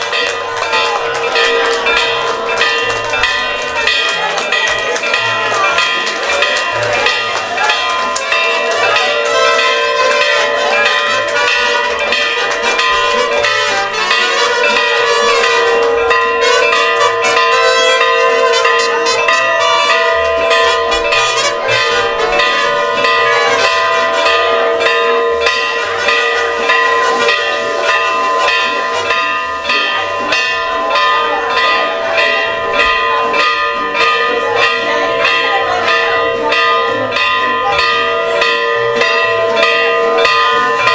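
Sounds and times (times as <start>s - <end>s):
church bells pealing: 0.0s - 40.9s.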